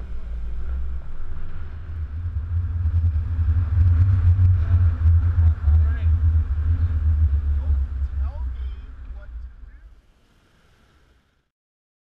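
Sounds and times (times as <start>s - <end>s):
wind buffeting camera: 0.0s - 10.1s
truck road rumble: 0.0s - 11.2s.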